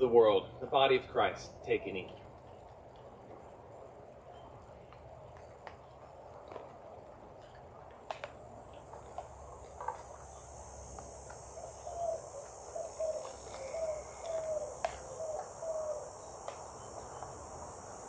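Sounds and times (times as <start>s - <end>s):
insects buzzing: 0.0s - 18.0s
bird calling: 11.2s - 17.4s.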